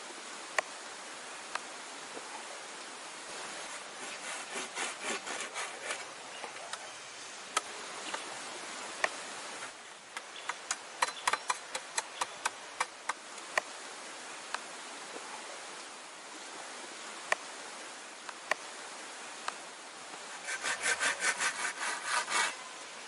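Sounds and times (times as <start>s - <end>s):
steady background hiss: 0.0s - 23.0s
hand saw cutting log: 3.7s - 6.1s, 20.3s - 22.8s.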